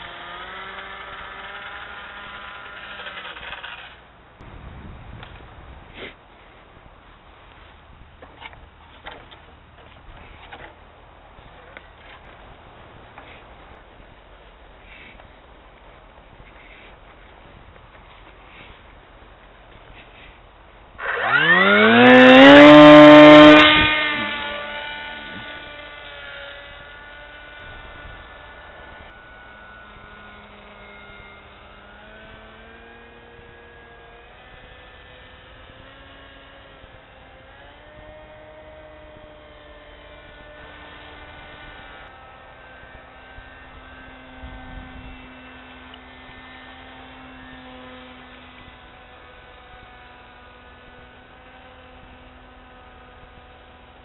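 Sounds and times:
model plane motor whine: 0.0 - 4.5, 16.4 - 54.0.

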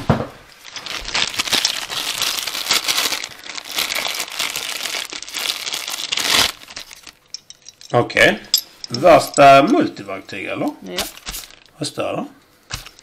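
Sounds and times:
plastic packaging crinkling: 0.5 - 7.9, 10.8 - 11.8, 12.7 - 13.0.

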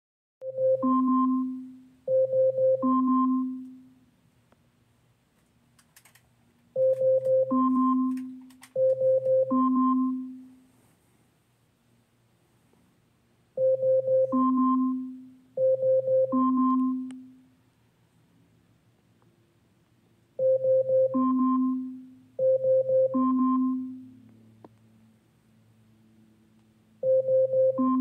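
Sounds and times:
smart speaker alarm chime: 0.4 - 3.9, 6.8 - 10.5, 13.6 - 17.4, 20.4 - 24.1, 27.0 - 28.0.

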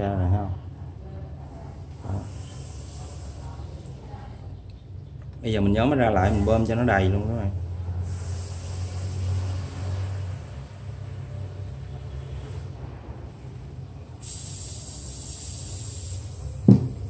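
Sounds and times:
gas hissing out of lighter: 2.1 - 4.0, 8.0 - 10.2, 12.4 - 17.0
loud thump: 16.6 - 17.0.

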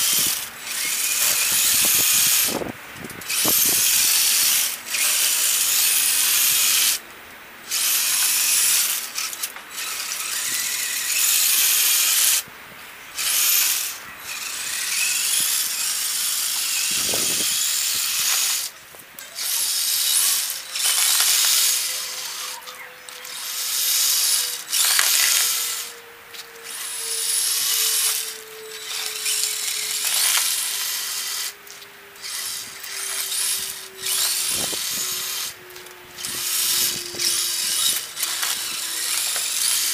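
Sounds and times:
toy truck electric motor whining: 0.0 - 7.0, 7.6 - 12.5, 13.1 - 39.9.

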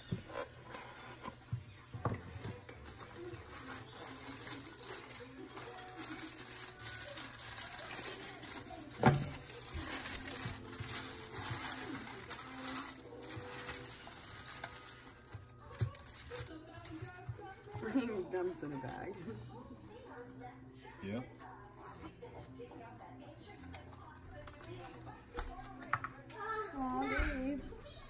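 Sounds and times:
tissue paper rustling: 0.3 - 19.4.

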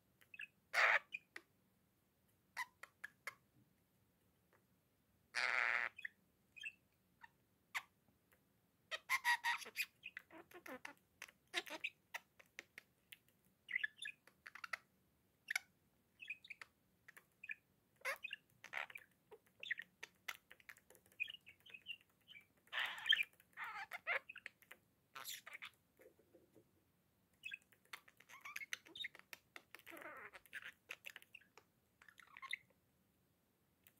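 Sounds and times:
budgerigar chirping and warbling: 0.2 - 1.4, 2.6 - 3.4, 5.3 - 6.8, 8.9 - 12.6, 13.6 - 14.8, 15.4 - 25.8, 27.4 - 32.7.

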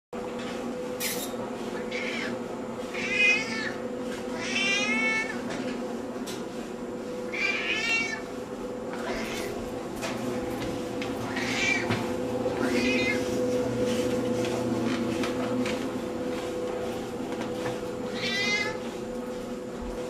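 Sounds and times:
cat meowing: 1.8 - 5.4, 7.3 - 8.2, 9.0 - 9.6, 11.3 - 11.9, 12.6 - 13.3, 18.1 - 18.8.

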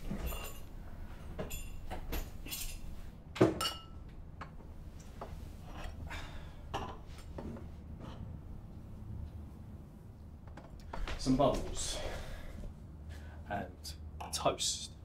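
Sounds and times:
glassware knocking and clinking: 3.6 - 4.0.

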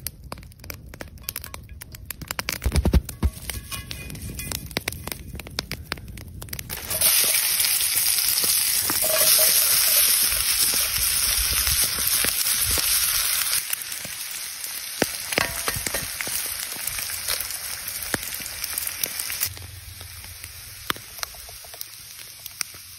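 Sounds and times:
pops and clicks: 0.0 - 7.0
campfire crackling: 0.0 - 22.9
food sizzling in skillet: 6.7 - 22.9.

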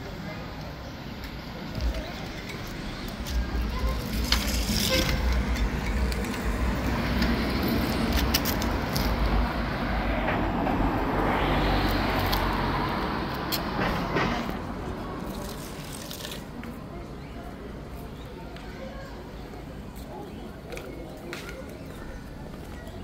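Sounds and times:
road traffic: 0.0 - 23.0
vehicle passing: 1.7 - 16.4.

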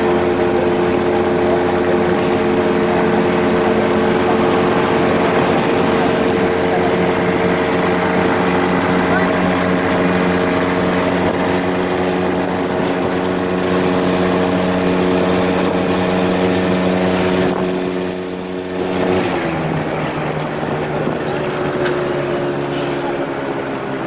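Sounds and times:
road and wind noise: 0.0 - 24.0
small engine running: 0.0 - 24.0.

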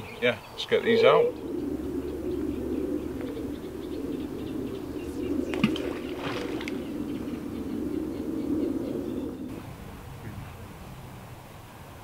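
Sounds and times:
small birds chirping: 0.0 - 9.6
pigeons cooing: 0.0 - 10.8.

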